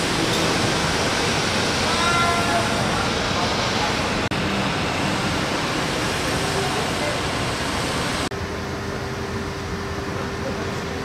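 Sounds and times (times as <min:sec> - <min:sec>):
engines droning: 0:00.0 - 0:11.0.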